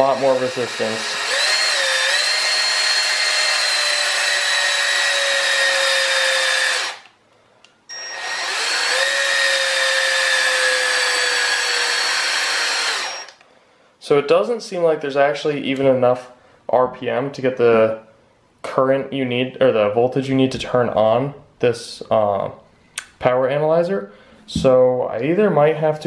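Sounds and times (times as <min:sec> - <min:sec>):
power drill motor whine: 0:00.0 - 0:07.1, 0:07.9 - 0:13.4.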